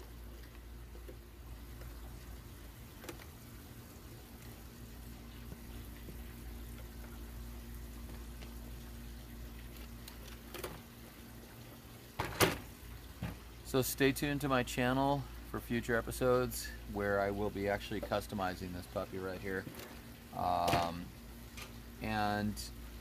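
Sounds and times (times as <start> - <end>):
faint background hum: 0.0 - 23.0.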